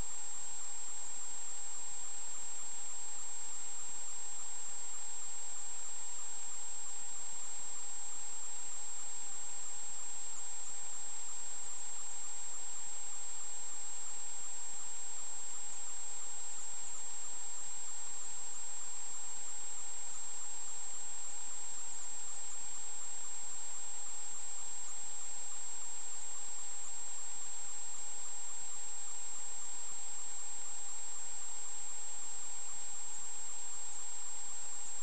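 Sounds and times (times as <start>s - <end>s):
constant hiss: 0.0s - 35.0s.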